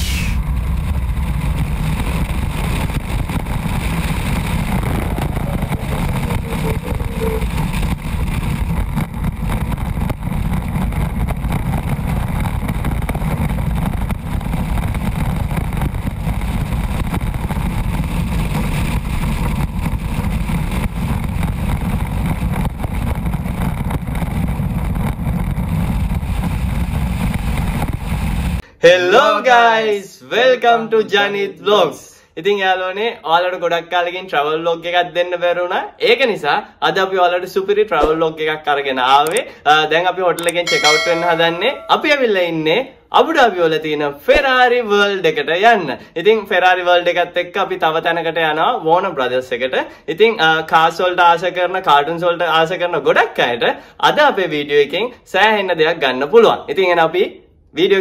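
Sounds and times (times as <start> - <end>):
roller coaster roaring: 3.7 - 8.6.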